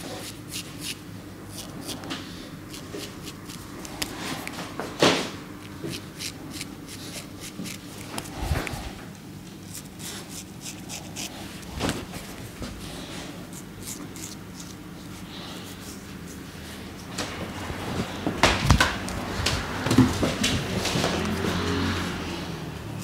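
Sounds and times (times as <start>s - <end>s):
razor scraping stubble: 0.0s - 4.7s, 5.6s - 9.0s, 9.7s - 19.2s.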